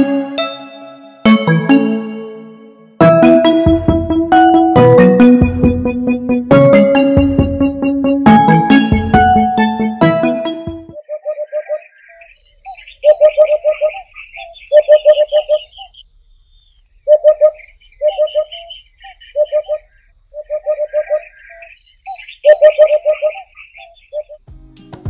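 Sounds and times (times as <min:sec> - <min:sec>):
small birds twittering: 0:11.0 - 0:24.4.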